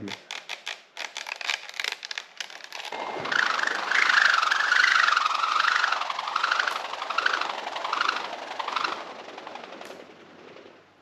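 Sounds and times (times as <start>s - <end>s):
ball whirling on cord swish: 2.8s - 10.9s.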